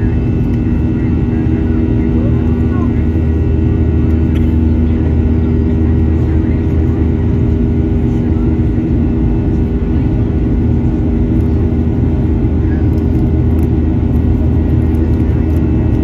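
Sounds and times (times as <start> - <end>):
jet engines droning in cabin: 0.0 - 16.0.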